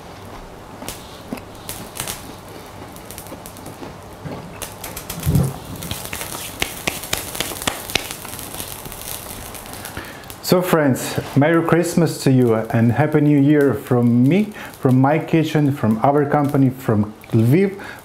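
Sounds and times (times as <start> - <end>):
person chewing a donut: 0.0 - 6.6.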